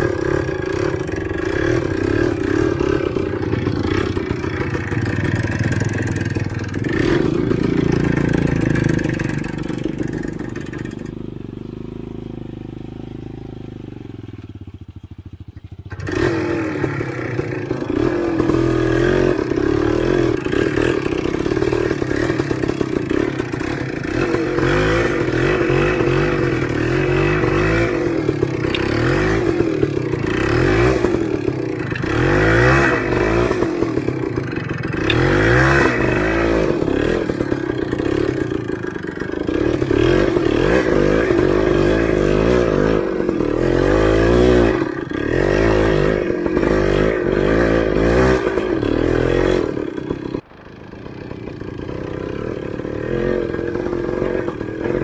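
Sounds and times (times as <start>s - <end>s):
motorcycle engine revving: 0.0s - 55.0s.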